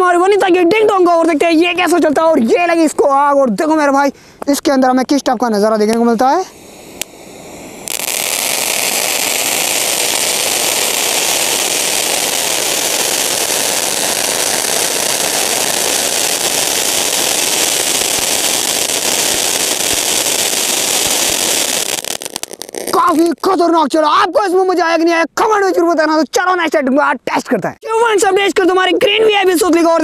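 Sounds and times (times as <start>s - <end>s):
fountain firework hissing: 6.2s - 23.4s.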